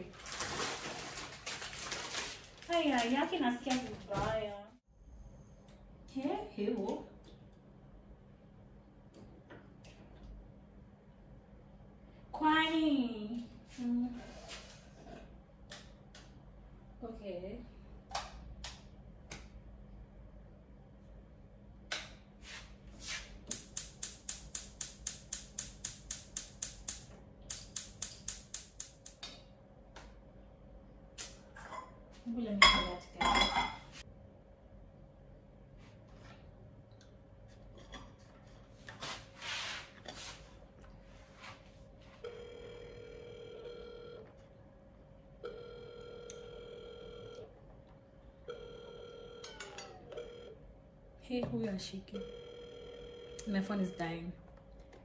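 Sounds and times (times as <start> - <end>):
spark igniter clicking: 23.5 - 29.3
phone ringing tone: 42.2 - 44.3, 45.4 - 47.5, 48.5 - 50.6, 52.2 - 54.1.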